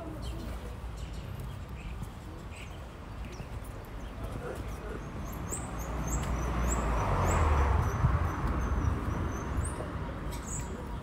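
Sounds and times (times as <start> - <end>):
small birds chirping: 0.0 - 11.0
vehicle passing: 4.3 - 10.2.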